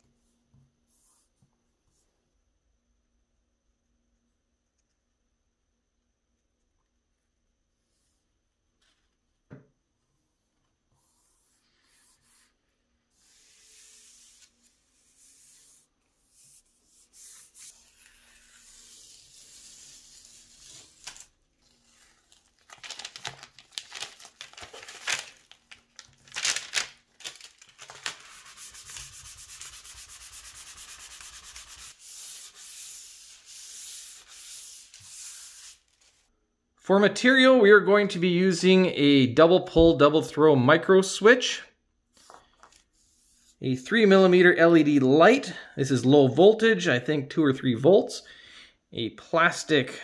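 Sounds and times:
hands rubbing paper: 11.0s - 36.3s, 42.2s - 43.6s
paper rustling: 17.2s - 36.3s, 42.1s - 43.6s
tape being peeled off: 17.4s - 36.2s.

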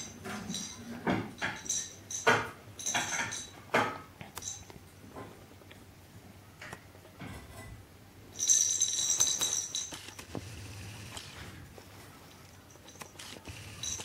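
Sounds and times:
toy rattling on carpet: 8.4s - 11.2s.

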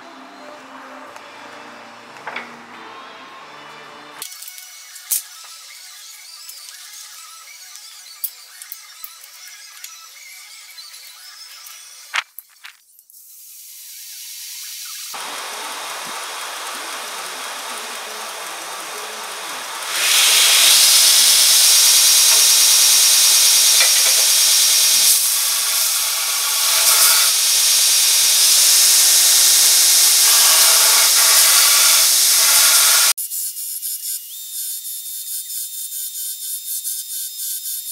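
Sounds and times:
metal grinding hiss: 13.3s - 33.2s
belt grinder running: 13.8s - 37.9s.

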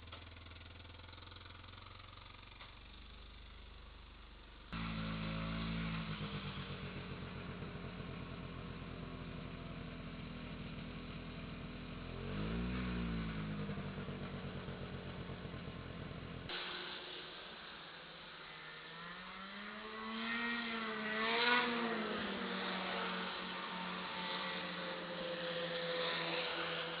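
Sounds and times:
vehicle engine throbbing: 0.0s - 16.6s.

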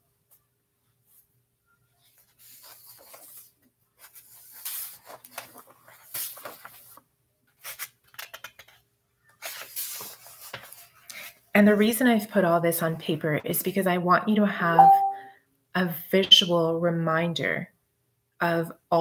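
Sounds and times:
paper rustling and scratching: 2.0s - 11.4s.

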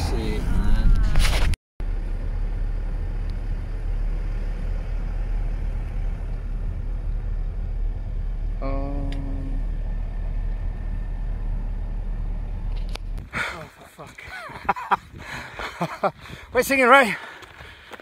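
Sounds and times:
car engine running inside cabin: 1.8s - 13.2s.

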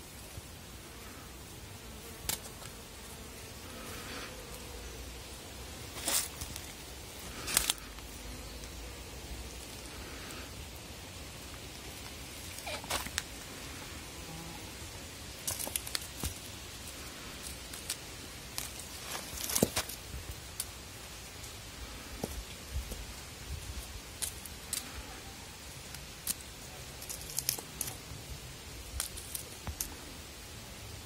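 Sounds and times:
steady outdoor hiss: 0.0s - 31.0s
kitten scuffling on dry grass: 5.9s - 8.1s.

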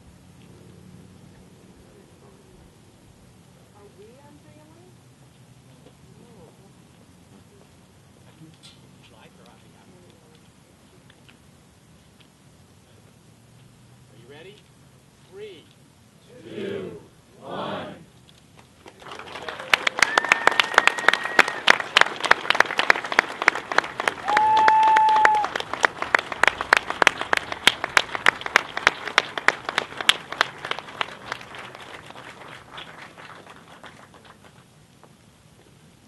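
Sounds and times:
crowd applauding: 18.8s - 34.6s.

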